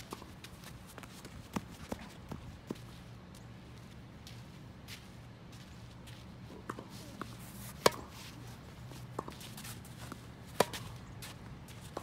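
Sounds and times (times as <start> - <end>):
distant tennis ball hits and bounces: 6.5 - 8.3, 9.1 - 12.0
tennis racket hitting ball: 7.8 - 8.1, 10.1 - 11.0.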